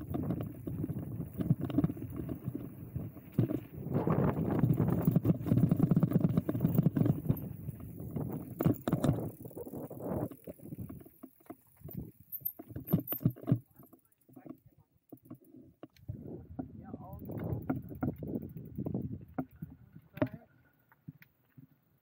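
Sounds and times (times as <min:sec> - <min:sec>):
tyres rumbling over rough ground: 0:00.0 - 0:12.9
bike rattling and clattering: 0:00.0 - 0:15.5, 0:16.6 - 0:20.4.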